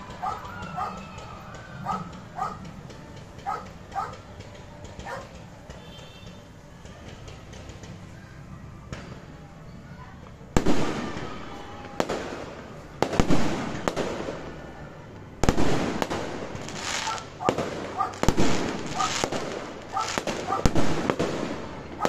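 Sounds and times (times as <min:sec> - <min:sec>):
crackling firework pops: 0:10.3 - 0:22.0.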